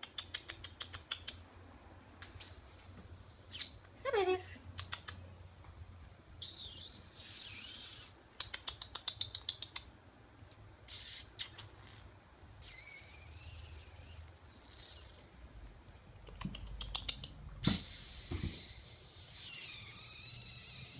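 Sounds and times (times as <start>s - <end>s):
kitten claw clicks: 0.0s - 1.4s, 4.8s - 5.2s, 7.4s - 9.9s, 16.2s - 17.8s.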